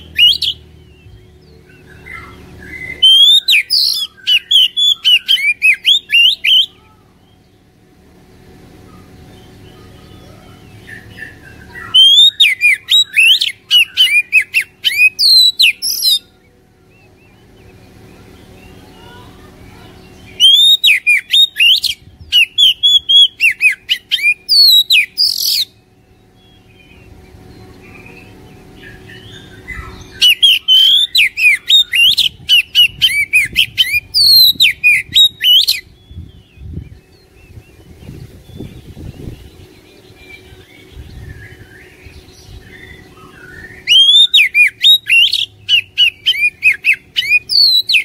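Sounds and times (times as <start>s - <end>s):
bird singing whistles: 0.0s - 6.8s, 10.8s - 16.3s, 20.2s - 27.0s, 28.9s - 37.3s, 42.6s - 48.0s.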